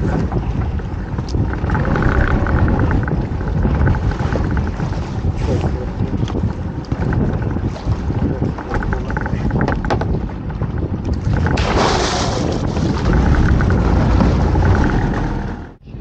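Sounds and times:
wind on microphone: 0.0s - 16.0s
small boat engine running: 0.1s - 11.6s, 12.7s - 15.8s
knocks: 8.6s - 10.2s.

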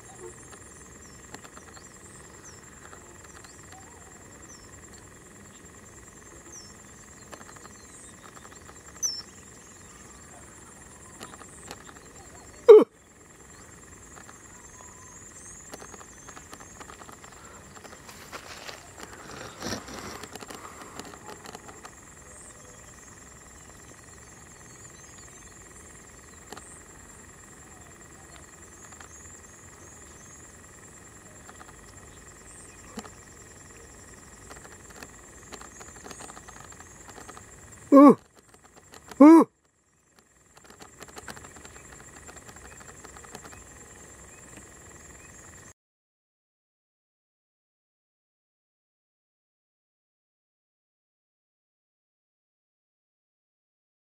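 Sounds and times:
insects and frogs calling: 0.0s - 45.8s
rustling and crackling: 15.6s - 22.1s, 34.0s - 39.2s, 40.2s - 43.8s.

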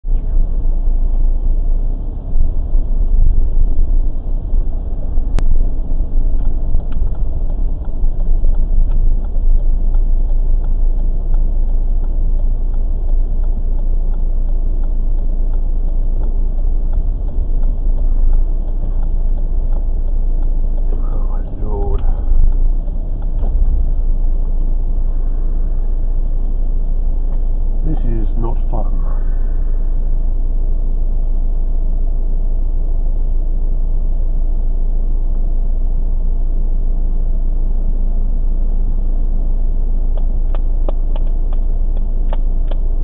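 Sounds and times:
car engine rumble inside cabin: 0.0s - 43.0s
faint regular ticking: 2.8s - 28.5s.

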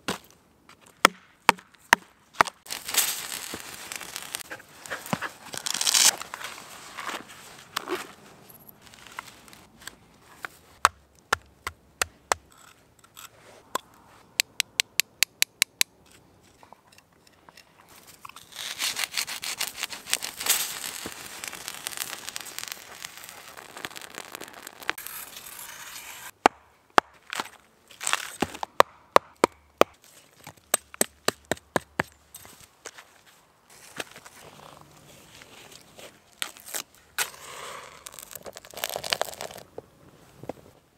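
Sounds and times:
crackling hiss of chemical fire: 2.7s - 6.1s, 19.6s - 26.4s.

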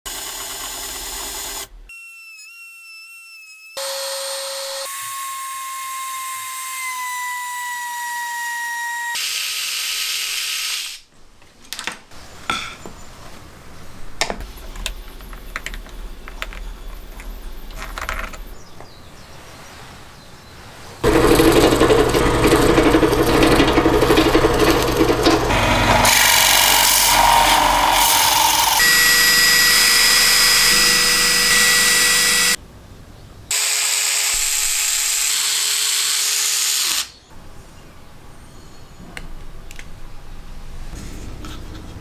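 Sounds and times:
cordless drill driving a screw: 9.1s - 11.0s, 21.0s - 32.6s, 33.5s - 37.1s
power tool motor whining: 21.0s - 32.6s.

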